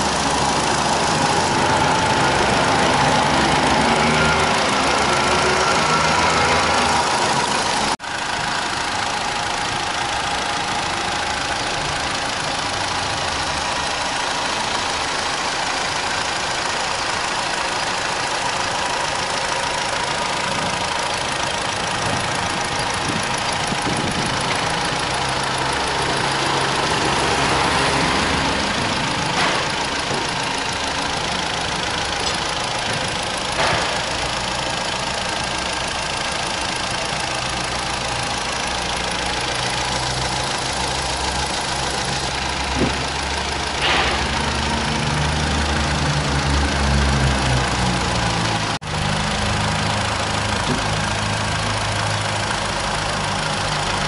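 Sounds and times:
car engine idling: 0.0 - 54.0.

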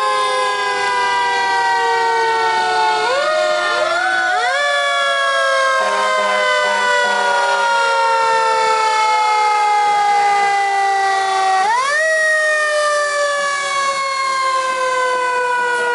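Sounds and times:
fire engine siren wailing: 0.0 - 15.9.

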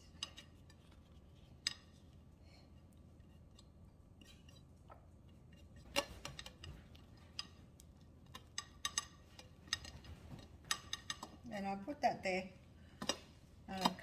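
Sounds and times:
light clicks and taps on plate: 3.5 - 11.5.

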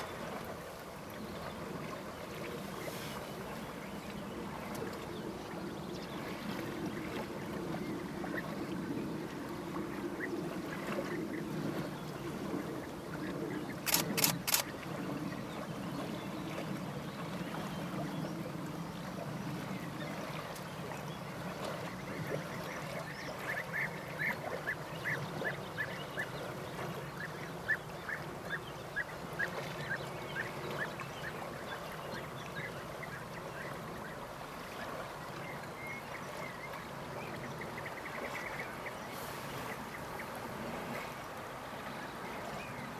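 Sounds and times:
sharp clicks: 13.8 - 14.6.

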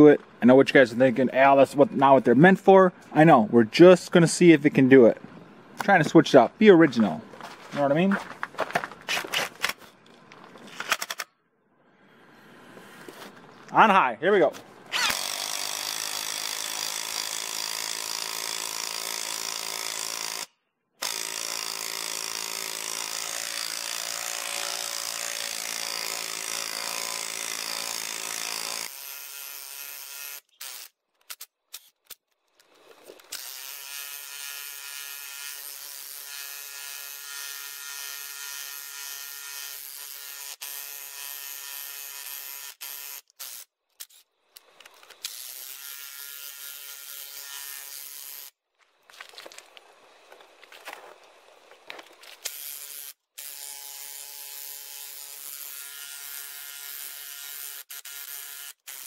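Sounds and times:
impact wrench drilling into wood: 14.9 - 31.9, 33.0 - 48.6, 52.3 - 59.0.

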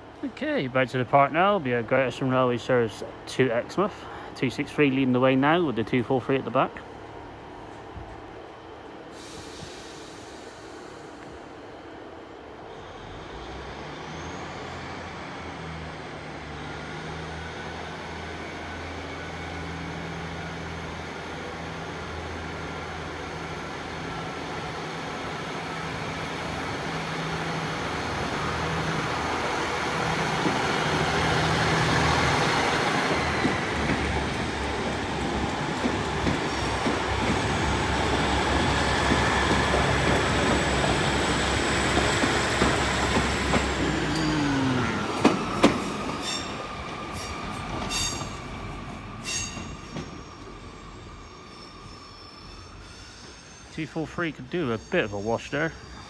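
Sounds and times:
diesel train engines droning: 0.0 - 56.0
train wheels clicking over rail joints: 29.6 - 44.4, 45.0 - 48.5.

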